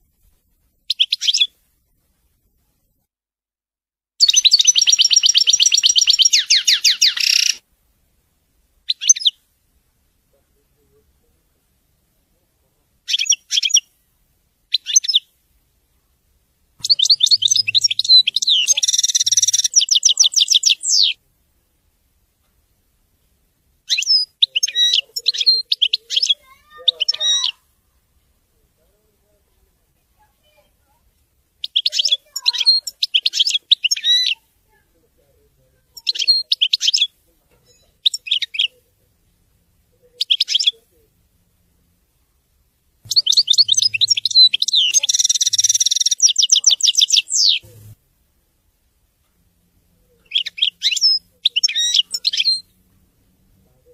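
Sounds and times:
goldfinch singing: 0.9 - 1.5, 4.2 - 7.6, 14.7 - 15.3, 16.8 - 21.2, 23.9 - 27.6, 31.6 - 34.4, 35.8 - 38.8, 40.2 - 40.9, 43.1 - 48.0, 50.2 - 52.8.

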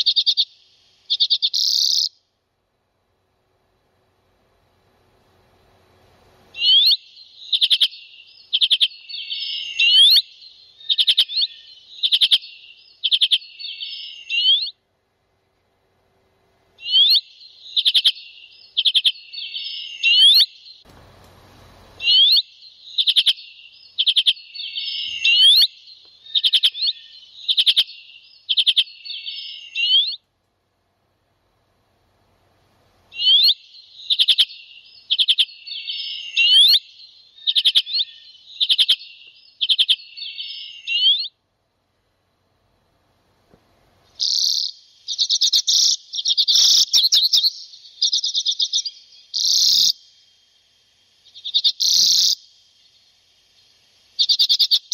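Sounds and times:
small songbird calling: 0.0 - 2.3, 6.5 - 14.8, 16.8 - 20.9, 22.0 - 30.2, 33.1 - 41.4, 44.1 - 54.9.

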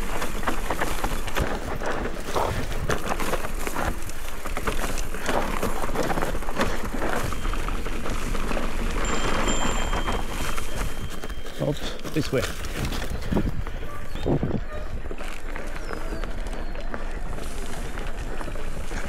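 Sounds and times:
bike clattering: 0.0 - 13.5
tyres crunching over dirt and stones: 0.0 - 19.0.

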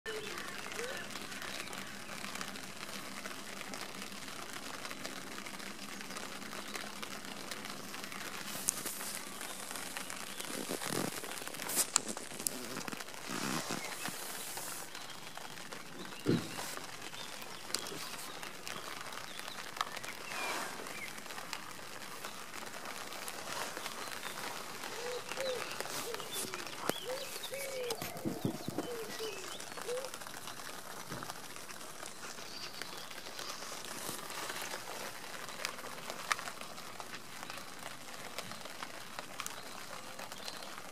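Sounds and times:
rain pattering on a tent: 0.0 - 40.9
fabric rustling: 8.4 - 15.1, 20.3 - 37.2.

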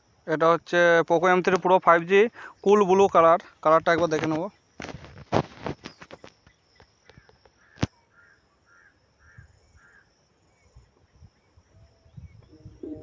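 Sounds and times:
bird harsh calls: 7.0 - 10.1.

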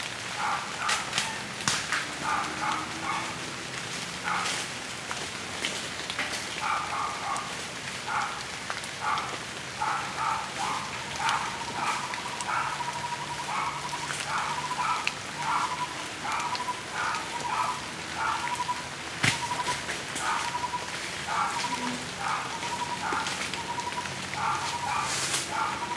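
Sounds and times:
rain patter: 0.0 - 25.9
animal calling: 2.1 - 3.4, 9.0 - 25.9.

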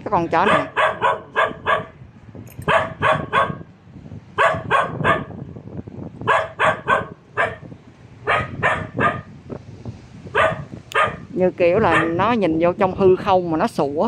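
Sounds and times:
dog barking: 0.4 - 2.0, 2.6 - 3.7, 4.4 - 5.4, 6.2 - 9.3, 10.3 - 12.2.

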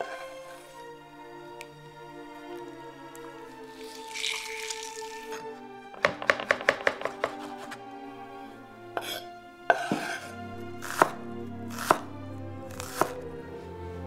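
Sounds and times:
soft background music: 0.0 - 14.0
knock: 6.0 - 7.5
knife chopping on wooden board: 6.0 - 7.8, 9.0 - 12.1, 12.7 - 13.2.

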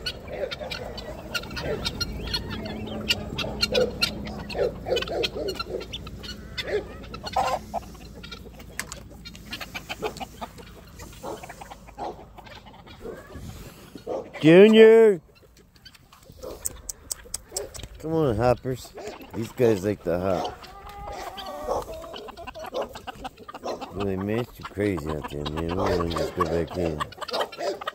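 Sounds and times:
chickens clucking: 0.0 - 27.9
guinea fowl calling: 0.0 - 27.9.

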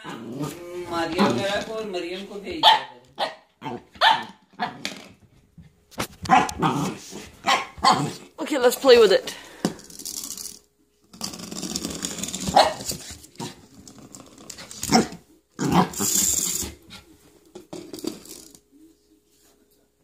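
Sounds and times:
puppy growling: 0.0 - 1.6, 6.3 - 8.4, 11.2 - 17.0
puppy barking: 2.6 - 4.8, 6.3 - 6.7, 7.4 - 8.2, 12.5 - 12.9.

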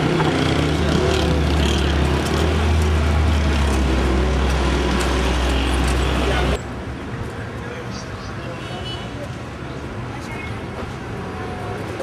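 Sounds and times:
busy street traffic: 0.0 - 12.0.

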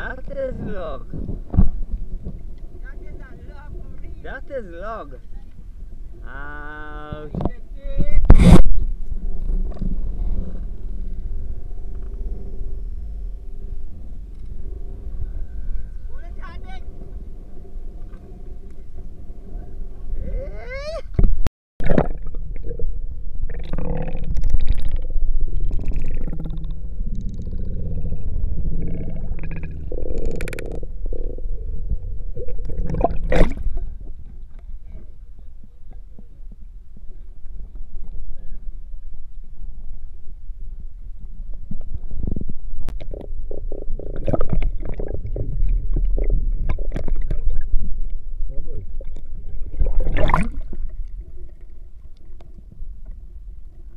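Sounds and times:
underwater rumble and gurgling: 0.0 - 53.9
muffled underwater gurgling: 21.8 - 36.4, 42.0 - 52.7.

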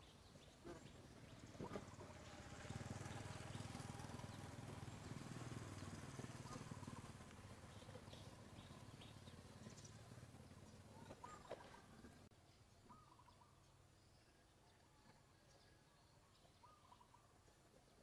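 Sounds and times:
faint bird chirps: 6.4 - 18.0.

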